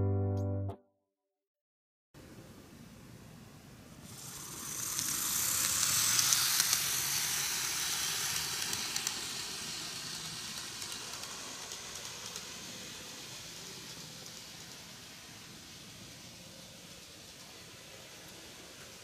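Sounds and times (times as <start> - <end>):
model train motor whirring: 4.0 - 19.0.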